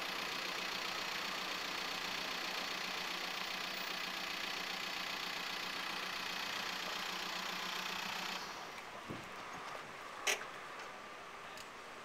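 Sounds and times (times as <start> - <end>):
engine idling: 0.0 - 8.8.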